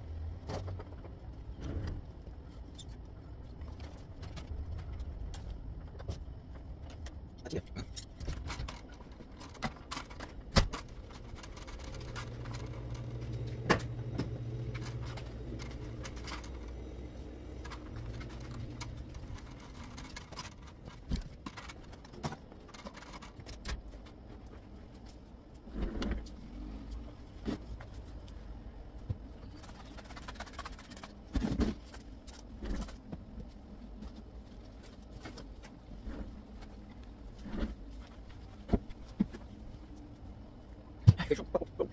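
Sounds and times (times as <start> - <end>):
low steady hum: 0.0 - 41.9
knocks and bumps of objects: 7.8 - 16.8, 29.0 - 39.6.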